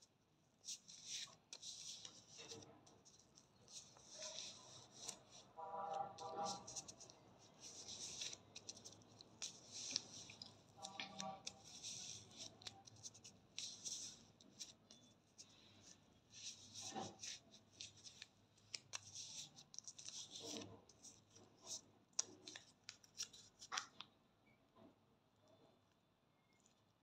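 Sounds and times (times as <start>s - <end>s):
scratchy rubbing on skin: 0.7s - 15.0s, 16.3s - 21.8s.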